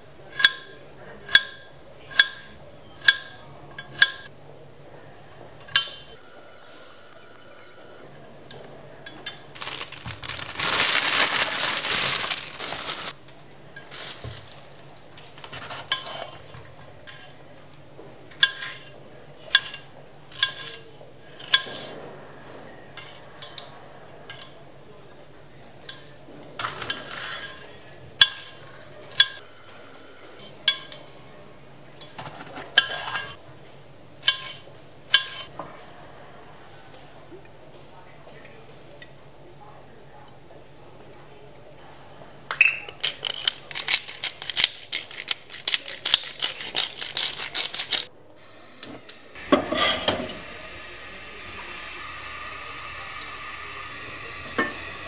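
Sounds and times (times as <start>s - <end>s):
rough noise: 9.4s - 13.2s.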